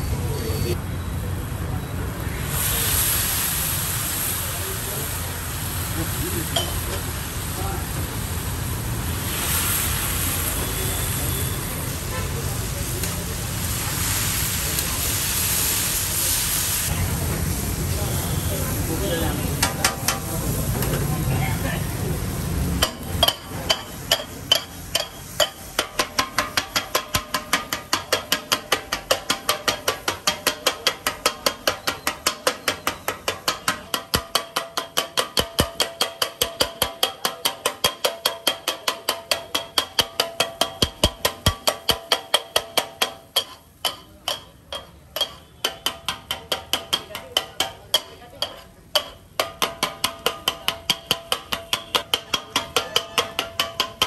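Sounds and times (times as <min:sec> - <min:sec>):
metal blades clanging on griddle: 0:06.5 - 0:06.9, 0:19.6 - 0:21.0, 0:22.8 - 0:54.0.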